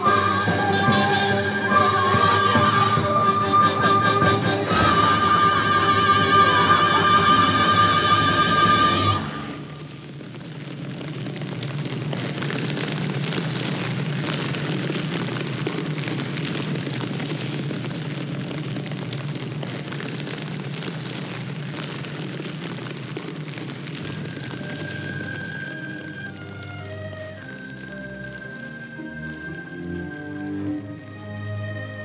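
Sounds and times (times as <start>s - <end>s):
large fire crackling: 0.0s - 32.0s.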